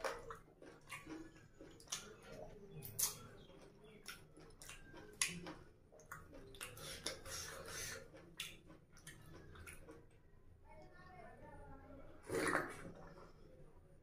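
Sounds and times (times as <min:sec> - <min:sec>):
person chewing: 0:00.0 - 0:10.1
wet mouth clicks and lip smacks: 0:02.8 - 0:03.3.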